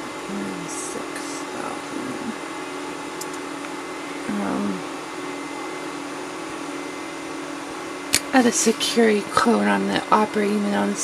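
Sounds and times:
equipment hum and fan whir: 0:00.0 - 0:11.0
murmured voice: 0:00.3 - 0:02.4.

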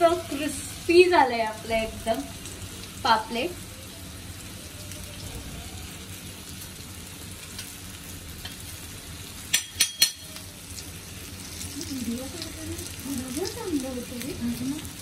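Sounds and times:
oil sizzling: 0:00.0 - 0:15.0.

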